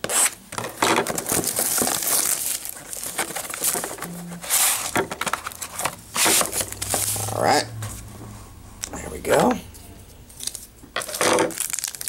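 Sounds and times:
plastic wrap crinkling and tearing: 0:00.1 - 0:07.3, 0:10.4 - 0:12.0.

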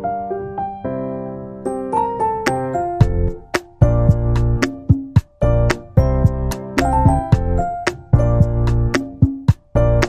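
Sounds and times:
background music with beat: 0:01.9 - 0:10.0.

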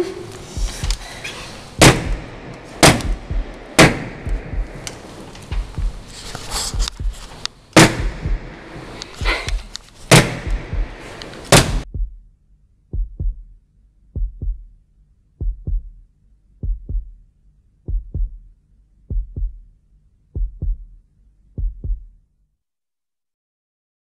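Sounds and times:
heartbeat thumping: 0:00.4 - 0:01.2, 0:01.8 - 0:12.3, 0:12.9 - 0:14.8, 0:15.4 - 0:17.2, 0:17.8 - 0:19.7, 0:20.3 - 0:21.0, 0:21.6 - 0:22.2
loud sharp cracks: 0:01.8 - 0:05.4, 0:07.8 - 0:11.8.

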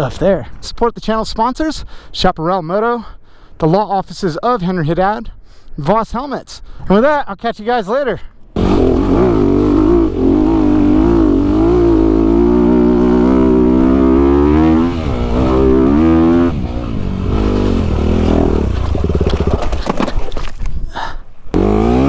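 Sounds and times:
dirt bike engine revving: 0:08.6 - 0:19.9, 0:21.6 - 0:22.0.

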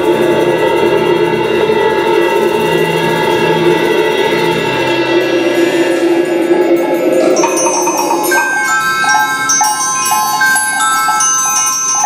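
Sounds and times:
group playing percussion: 0:05.1 - 0:12.0
cymbal struck with mallet: 0:05.5 - 0:12.0.

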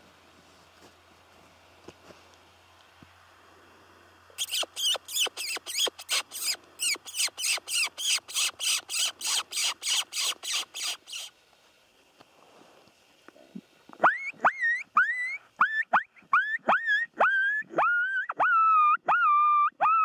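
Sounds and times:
shrill mouse squeaks from predator call: 0:04.4 - 0:11.3, 0:14.0 - 0:20.0.

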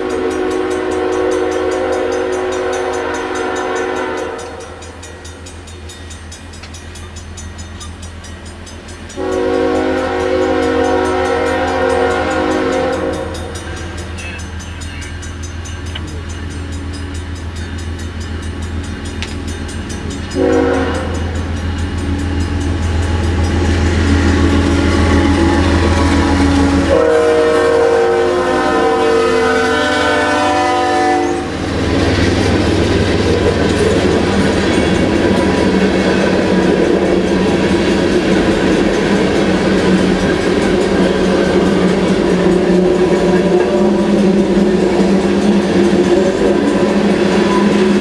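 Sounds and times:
train air horn: 0:00.0 - 0:04.9, 0:09.2 - 0:14.4, 0:20.3 - 0:21.4, 0:24.2 - 0:31.8
diesel locomotive droning: 0:00.0 - 0:48.0
wheels clacking over rail joints: 0:31.4 - 0:48.0.

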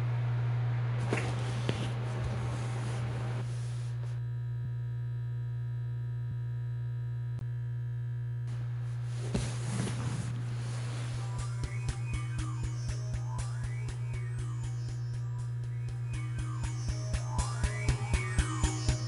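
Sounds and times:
low electronic drone: 0:10.6 - 0:19.0
held synthesizer chord: 0:10.8 - 0:19.0.

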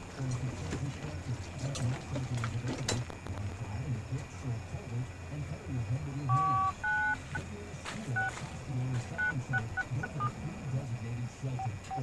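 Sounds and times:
touch-tone keypad beeps: 0:06.3 - 0:07.4, 0:09.2 - 0:10.3.

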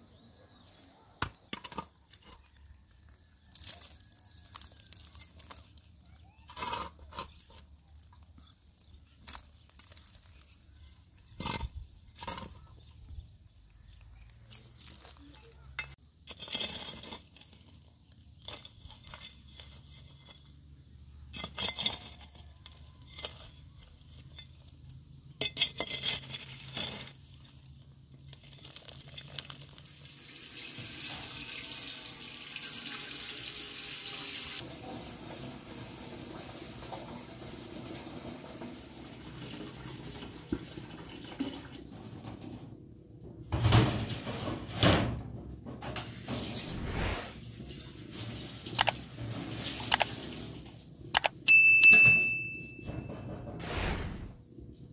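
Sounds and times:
metal spoon scraping ash: 0:06.4 - 0:07.9, 0:14.5 - 0:20.7, 0:21.3 - 0:29.8
tap water running into sink: 0:30.0 - 0:42.6.

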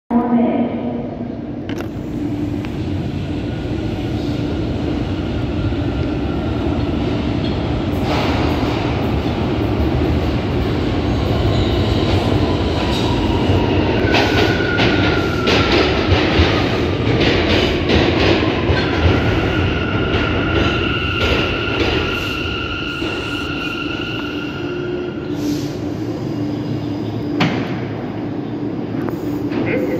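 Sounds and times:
train rumble: 0:00.2 - 0:29.9
falling whine of braking train: 0:07.4 - 0:17.0, 0:18.3 - 0:29.9.

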